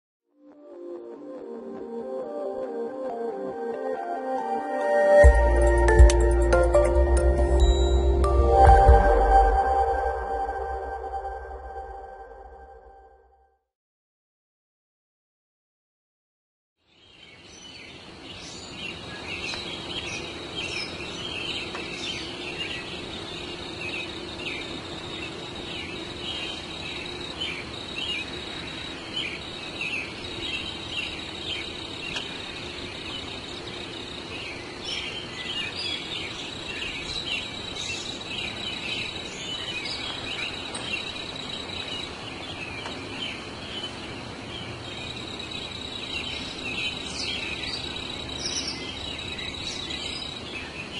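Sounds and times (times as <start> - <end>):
small birds chirping: 16.8 - 50.9
high insect trill: 20.0 - 42.6, 44.8 - 50.6.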